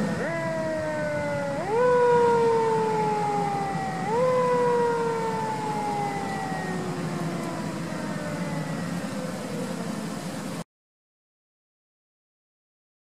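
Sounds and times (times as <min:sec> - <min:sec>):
fire engine siren: 0:00.0 - 0:10.6.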